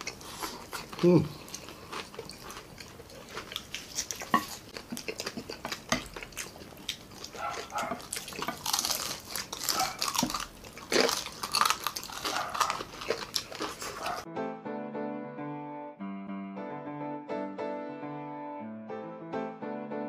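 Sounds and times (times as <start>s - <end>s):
crunching and chewing: 0.0s - 14.3s
plates and utensils clinking: 4.2s - 4.6s.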